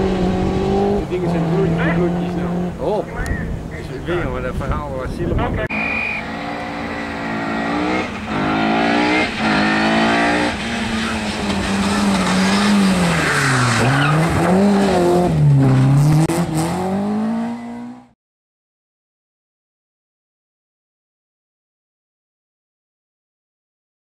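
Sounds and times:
rally car engine accelerating: 0.0s - 2.9s, 5.7s - 18.2s.

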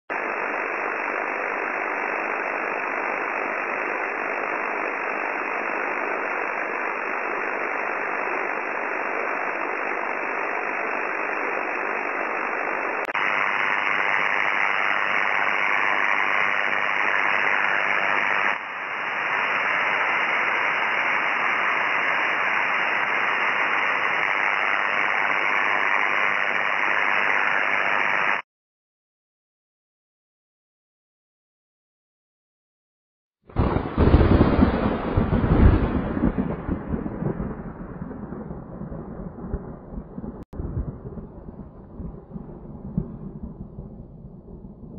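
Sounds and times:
mains interference buzz: 0.1s - 28.4s
radio interference rushing noise: 0.1s - 28.4s.

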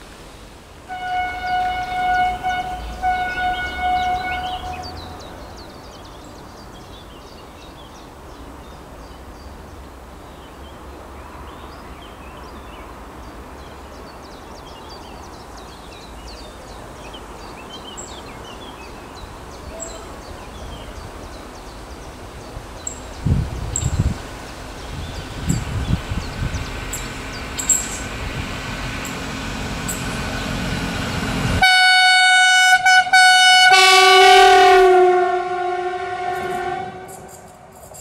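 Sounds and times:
distant diesel railcar rumbling: 0.0s - 38.0s
small birds chirping: 1.4s - 28.2s.

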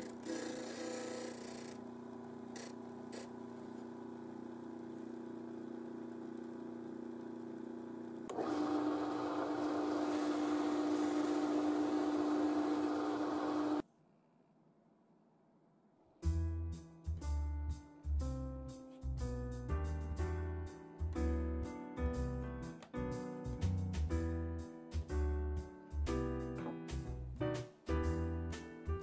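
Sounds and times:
drill press boring into wood: 0.0s - 1.8s, 8.3s - 13.8s
disc sander motor humming: 0.0s - 13.8s.

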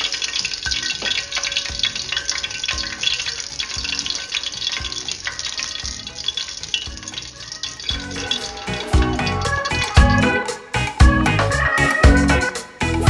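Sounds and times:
hot oil sizzling and crackling: 0.0s - 13.0s
soft background beat: 7.8s - 13.0s.

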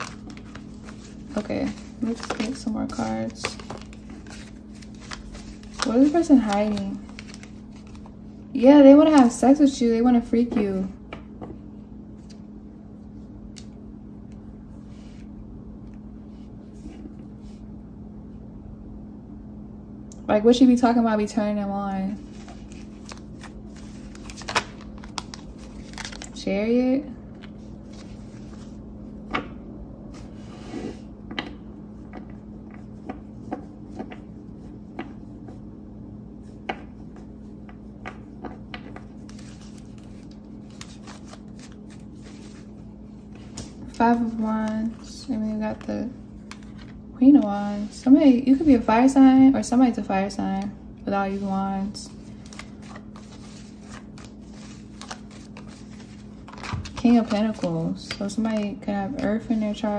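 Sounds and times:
cards rustling and ticking: 0.0s - 8.2s, 22.3s - 26.4s, 38.0s - 47.0s, 52.1s - 59.6s
low room hum: 0.0s - 59.9s.

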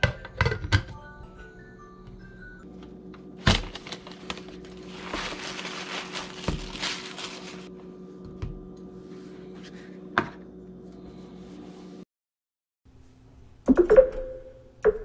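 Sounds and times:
steady low hum: 2.6s - 12.0s
paper bag rustling and crinkling: 3.4s - 7.7s.

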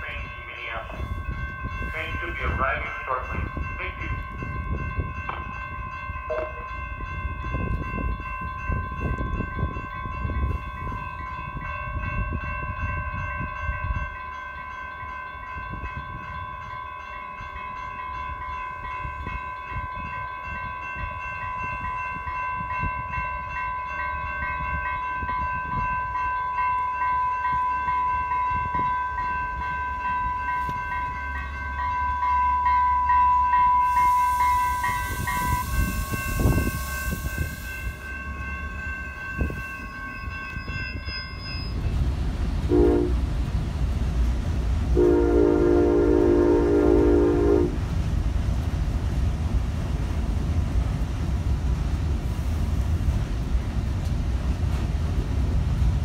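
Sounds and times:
train bell ringing: 0.0s - 44.4s, 45.0s - 47.8s
train pulling in: 0.0s - 56.0s
air hiss: 33.8s - 38.1s.

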